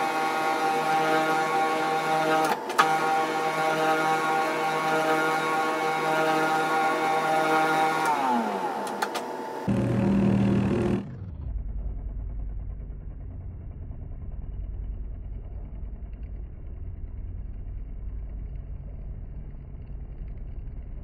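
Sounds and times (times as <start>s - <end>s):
metal lathe rumbling: 0.0s - 11.2s
loud sound with steady pitches: 2.9s - 13.2s.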